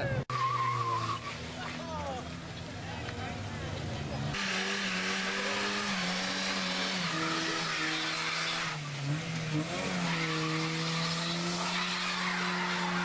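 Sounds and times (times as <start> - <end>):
car engine revving high: 4.3 - 13.0
tyres screeching: 9.8 - 13.0.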